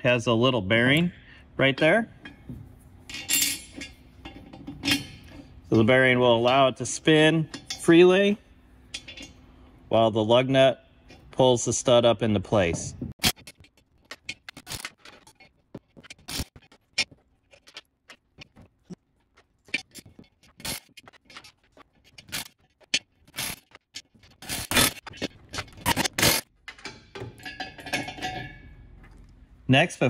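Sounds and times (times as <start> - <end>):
metal clicks and scrapes of nuts: 13.2 - 28.7.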